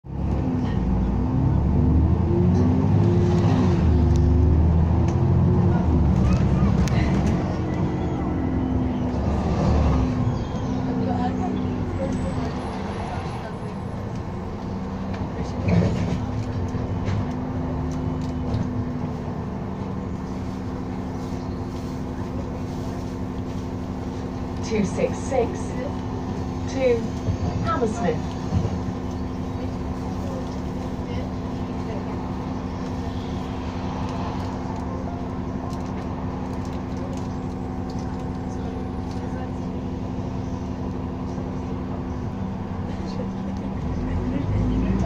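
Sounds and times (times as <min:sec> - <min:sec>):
bus engine drone: 0:00.0 - 0:45.0.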